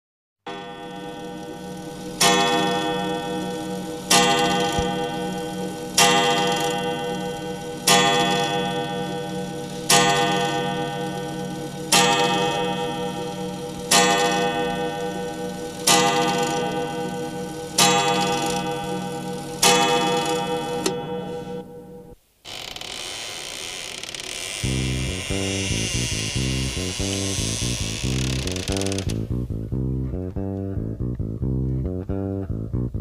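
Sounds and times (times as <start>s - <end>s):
bell tolling: 0.5s - 22.2s
pulsing low tone: 24.7s - 33.0s.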